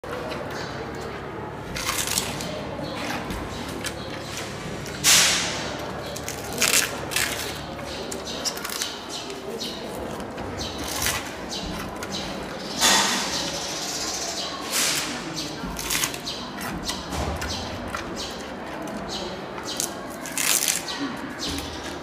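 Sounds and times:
panda crunching bamboo: 0:01.5 - 0:22.0.

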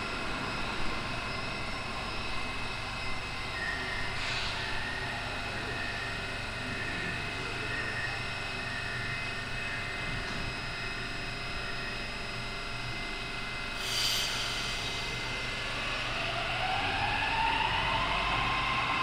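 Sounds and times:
air hiss burst: 0:13.8 - 0:15.1.

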